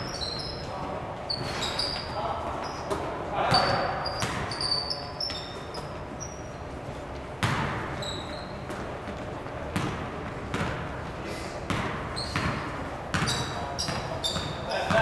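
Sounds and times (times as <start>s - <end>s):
sneaker squeaks: 0.0s - 10.8s, 11.6s - 15.0s
basketball bouncing on wooden floor: 3.5s - 4.6s, 7.4s - 7.8s, 9.8s - 10.8s, 11.7s - 15.0s.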